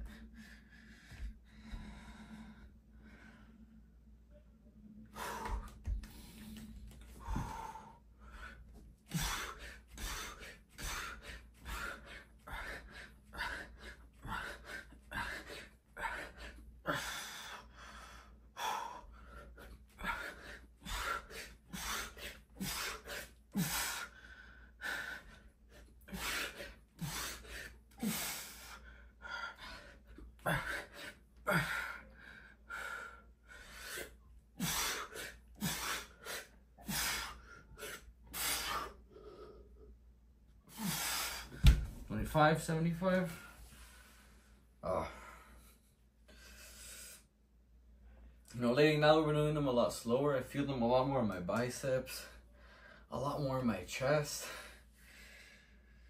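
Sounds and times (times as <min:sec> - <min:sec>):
man breathing hard: 0:00.0 - 0:04.1, 0:05.0 - 0:42.1, 0:43.1 - 0:47.4, 0:52.1 - 0:53.1, 0:54.3 - 0:56.0.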